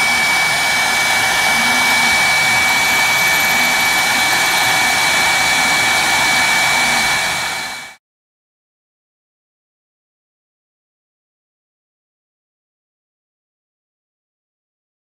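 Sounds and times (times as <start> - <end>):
engraving machine spindle whine: 0.0 - 8.0.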